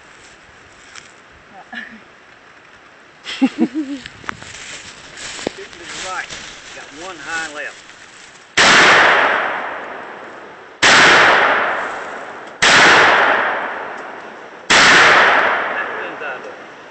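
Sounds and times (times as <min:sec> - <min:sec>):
rifle shots: 0:08.6 - 0:10.2, 0:10.8 - 0:16.3.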